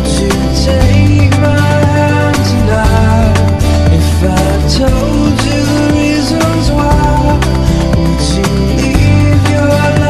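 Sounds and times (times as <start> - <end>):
song with guitar and beat: 0.0 - 10.0.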